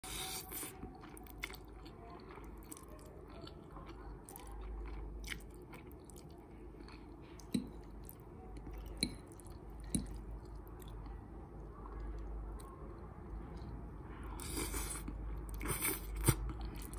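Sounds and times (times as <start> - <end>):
wet chewing: 0.1 - 11.1, 14.4 - 16.9.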